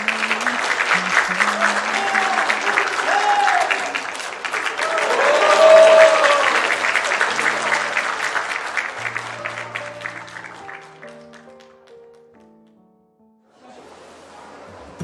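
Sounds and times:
crowd cheering: 0:00.0 - 0:11.6
crowd clapping: 0:00.0 - 0:12.8
soft background music: 0:09.1 - 0:12.9.

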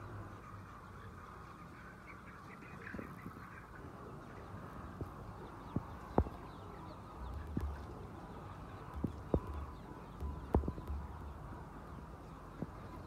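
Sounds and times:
chickens clucking: 0:00.0 - 0:13.0
sharp knocks: 0:10.2 - 0:11.0.

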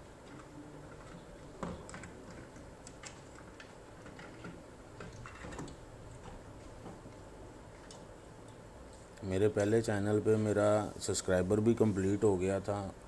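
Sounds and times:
clicks of handling wires: 0:00.2 - 0:09.2.

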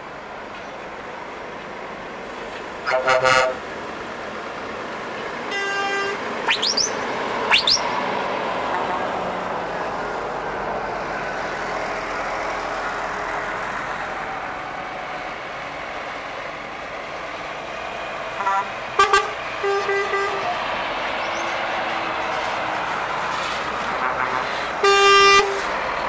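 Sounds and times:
diesel truck engine driving past: 0:01.9 - 0:26.0
truck air horn blast: 0:02.8 - 0:03.6, 0:05.5 - 0:06.8, 0:18.4 - 0:20.6, 0:23.9 - 0:25.8
sharply rising whistles: 0:06.5 - 0:08.0.

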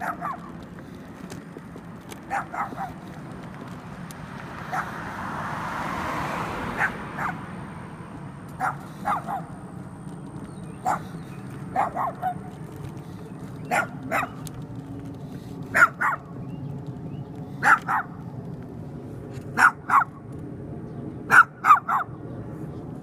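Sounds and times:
small dog barking: 0:00.0 - 0:00.6, 0:02.2 - 0:03.1, 0:04.6 - 0:05.0, 0:06.7 - 0:07.5, 0:08.5 - 0:09.6, 0:10.8 - 0:12.5, 0:13.6 - 0:14.4, 0:15.7 - 0:16.3, 0:17.6 - 0:18.2, 0:19.5 - 0:20.2, 0:21.3 - 0:22.2.

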